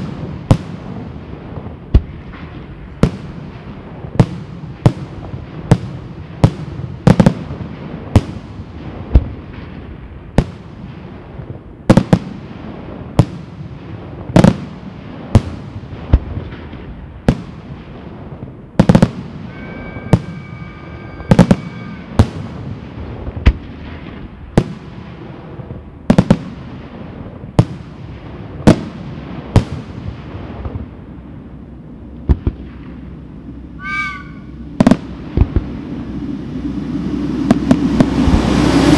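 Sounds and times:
firework whistle: 18.8 - 22.9, 33.7 - 38.9
firework shells bursting: 18.8 - 24.8
warbling firework whistle: 18.9 - 22.9, 33.7 - 38.9.

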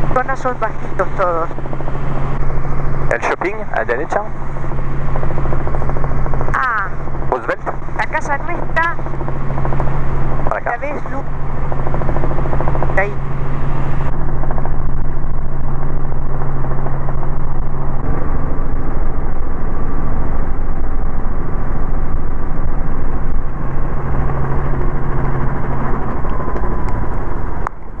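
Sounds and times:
helicopter engine and rotor drone: 0.0 - 28.0.

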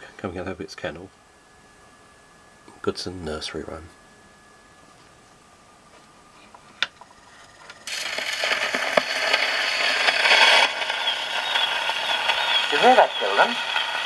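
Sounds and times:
record surface hiss and crackle: 0.0 - 14.0
faint wavering high squeak: 0.5 - 7.9.

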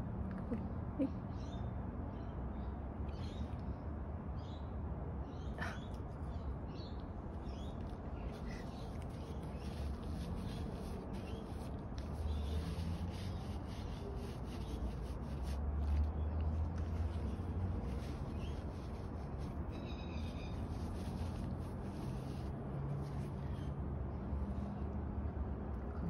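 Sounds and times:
tissue rubbing on fur: 8.8 - 23.4.

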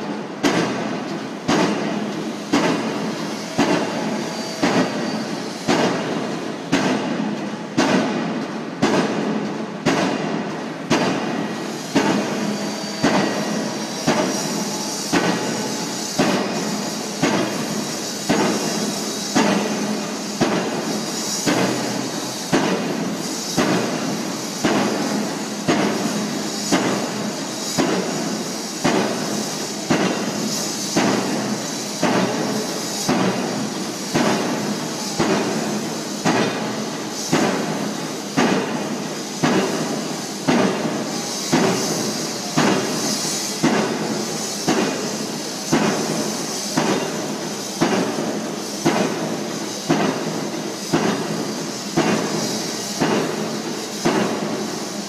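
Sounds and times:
pile driver hammer banging: 0.4 - 5.0, 5.7 - 16.6, 40.5 - 43.0.

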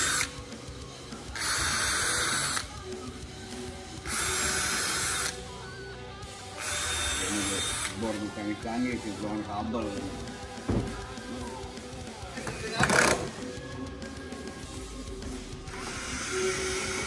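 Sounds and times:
cordless drill driving screws: 6.6 - 8.0.

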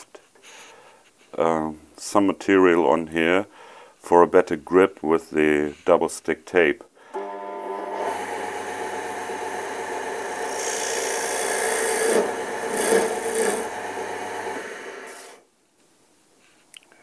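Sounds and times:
wood lathe motor running: 7.1 - 15.4
chisel scraping spinning wood: 8.0 - 15.4.

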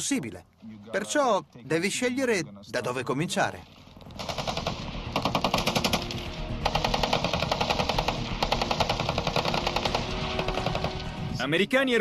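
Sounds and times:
machine gun firing bursts: 4.1 - 11.3.

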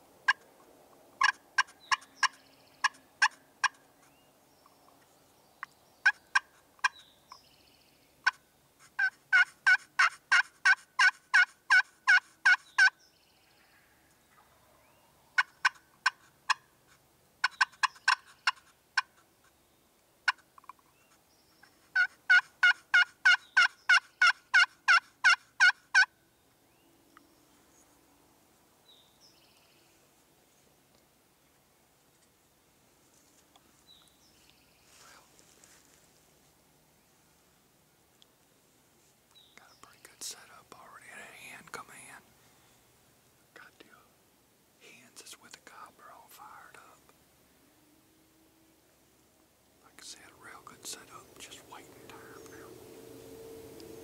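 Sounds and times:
turkey yelping: 9.0 - 12.9, 22.0 - 26.1.

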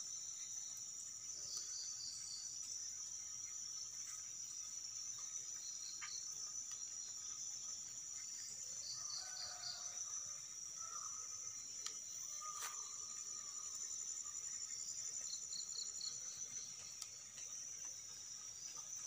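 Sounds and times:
faint chirps: 0.0 - 19.0
insects chirring: 0.0 - 19.0.

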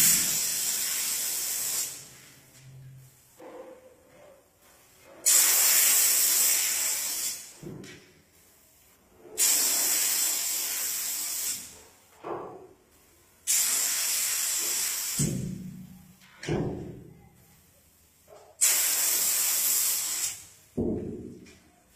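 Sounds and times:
paint spray gun hissing: 0.0 - 2.1, 5.3 - 7.5, 13.5 - 15.4, 18.6 - 20.4.

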